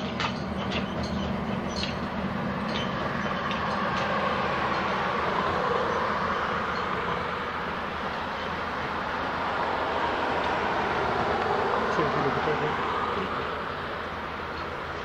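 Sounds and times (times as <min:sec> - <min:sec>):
tractor engine low rumble: 0:00.0 - 0:15.0.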